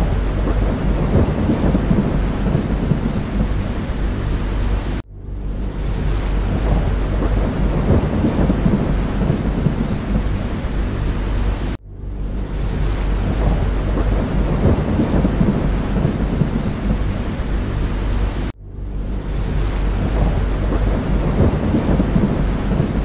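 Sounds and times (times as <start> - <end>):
deep continuous rumble: 0.0 - 23.0
heavy rain: 0.0 - 23.0.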